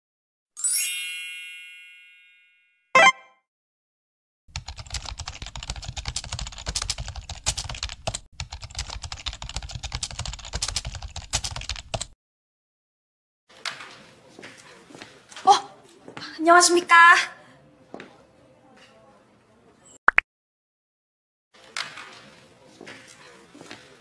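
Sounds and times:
bright chime: 0.6s - 3.2s
keyboard typing sound effect: 3.0s - 3.3s, 4.6s - 12.1s.

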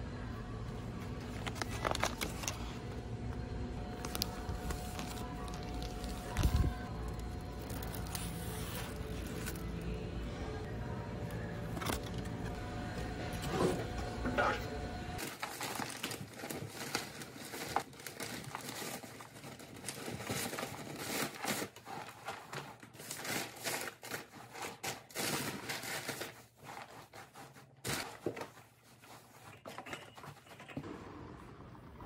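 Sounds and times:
paper bedding rustling and crinkling: 1.2s - 2.8s, 3.8s - 10.0s, 15.2s - 30.5s.

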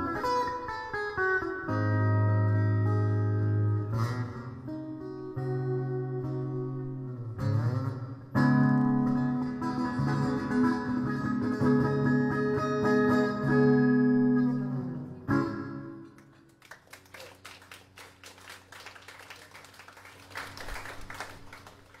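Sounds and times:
fingerstyle acoustic guitar: 0.0s - 16.2s
audience applause: 16.2s - 22.0s.

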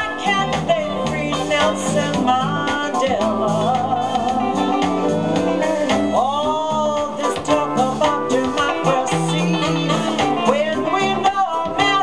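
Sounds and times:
soul-jazz record playing: 0.0s - 12.0s
walking bass line: 0.0s - 12.0s.

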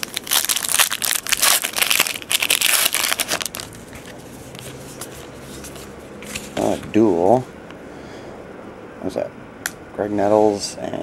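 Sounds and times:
foil wrapper tearing and crinkling: 0.0s - 3.8s.

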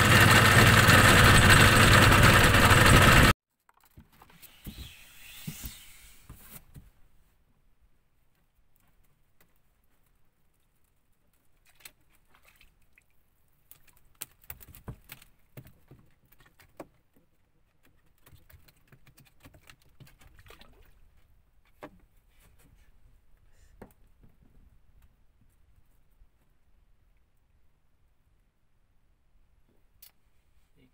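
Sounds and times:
small water splashes: 11.6s - 14.8s.

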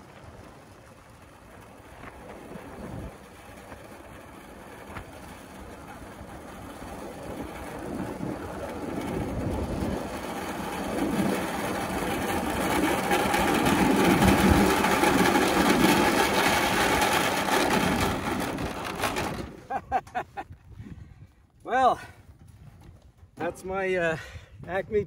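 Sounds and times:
wind noise: 0.0s - 25.0s
pulsejet engine buzzing: 0.7s - 19.7s.

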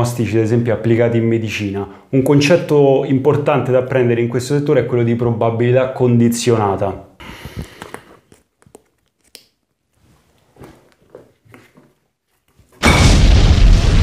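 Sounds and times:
hands rustling and clicking: 7.4s - 12.8s
explosion with deep boom: 12.8s - 14.0s.

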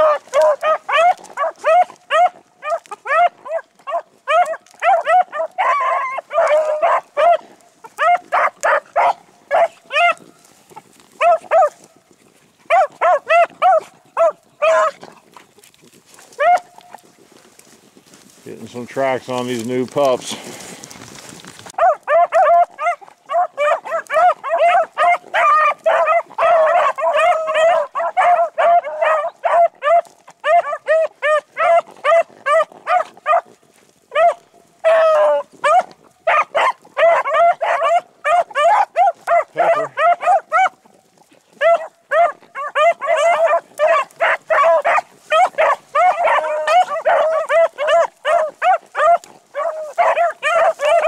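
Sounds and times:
dog howling: 0.0s - 7.4s, 8.0s - 10.3s, 12.7s - 15.0s, 21.8s - 33.4s, 34.1s - 40.7s, 41.6s - 51.0s
dogs baying: 0.0s - 17.1s, 21.7s - 51.0s.

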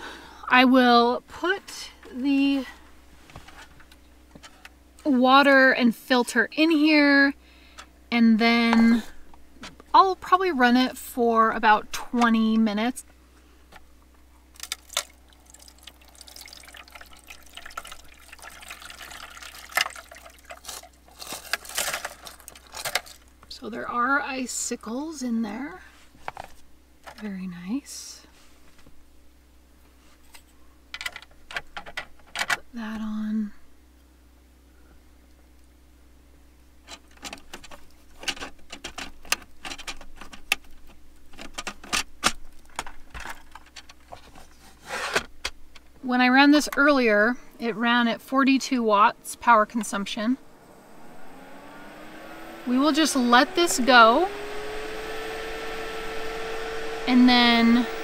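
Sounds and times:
water with ice pouring splashing: 14.6s - 23.2s.

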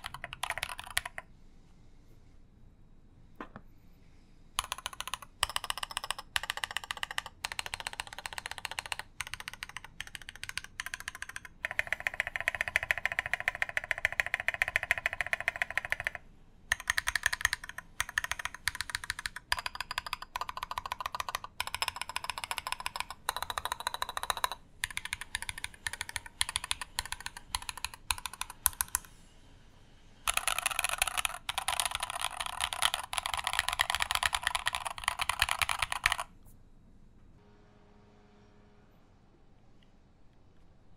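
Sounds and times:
fast typing on mechanical keyboard: 0.0s - 1.2s, 4.6s - 29.1s, 30.3s - 36.3s.

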